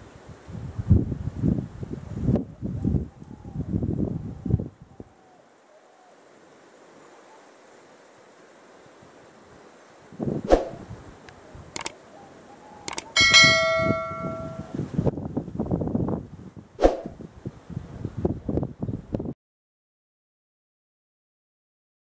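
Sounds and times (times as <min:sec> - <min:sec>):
wind buffeting on microphone: 0:00.2 - 0:05.1, 0:10.1 - 0:11.9, 0:13.2 - 0:19.4
sharp mouse clicks: 0:11.7 - 0:12.0, 0:12.9 - 0:13.2
bell chime: 0:13.2 - 0:14.7.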